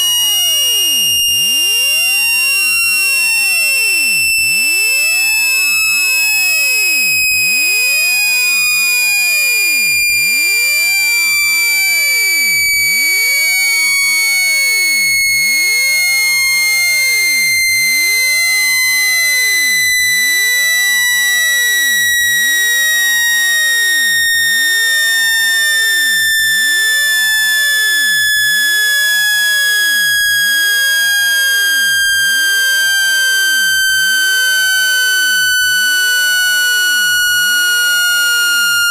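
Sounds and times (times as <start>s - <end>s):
synthesized tone gliding downward: 28.0s - 38.9s.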